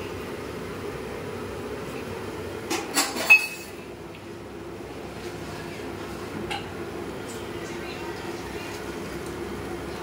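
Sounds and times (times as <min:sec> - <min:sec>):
metal pots clattering: 0:02.7 - 0:03.8.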